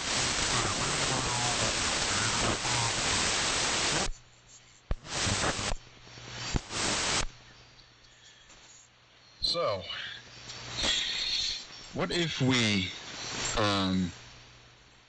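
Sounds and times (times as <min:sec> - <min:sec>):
radio static: 0:00.0 - 0:07.4, 0:10.6 - 0:14.2
faint voice: 0:00.5 - 0:03.2.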